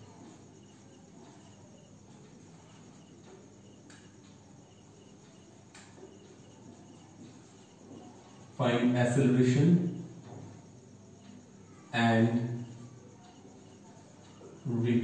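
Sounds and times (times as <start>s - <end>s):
faint cricket chirping: 0.0s - 15.0s.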